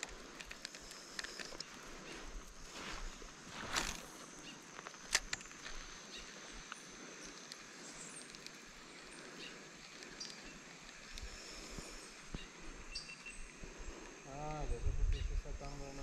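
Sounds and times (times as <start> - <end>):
high-pitched insect whine: 0.0 - 16.0.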